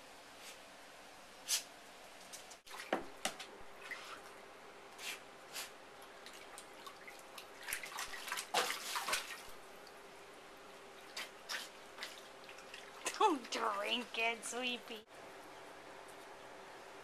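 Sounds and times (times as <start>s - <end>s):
water splashing and dripping: 6.1s - 10.0s, 11.0s - 14.2s.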